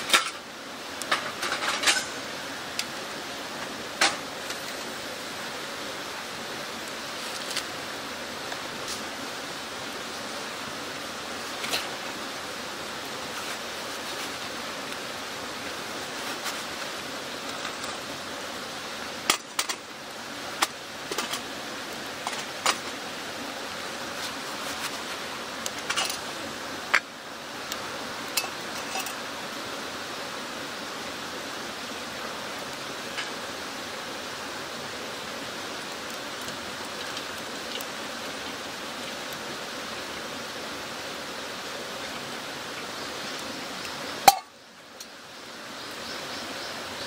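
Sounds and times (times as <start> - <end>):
steady rushing hiss: 0.0 - 47.0
metal pot and mugs clinking: 1.0 - 2.2, 28.3 - 29.2, 44.2 - 44.5.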